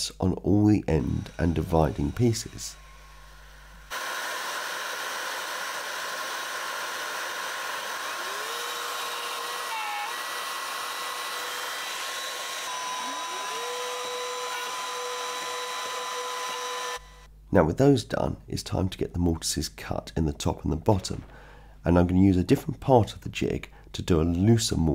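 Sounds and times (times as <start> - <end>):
plunge router cutting: 1.0 - 17.3
vacuum drawing dust: 1.1 - 17.0.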